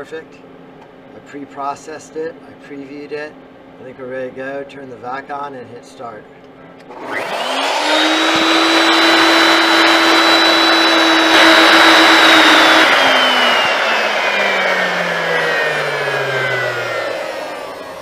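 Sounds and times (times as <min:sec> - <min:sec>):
cnc router spindle whining: 0:06.9 - 0:18.0
shop vacuum rushing: 0:06.9 - 0:18.0.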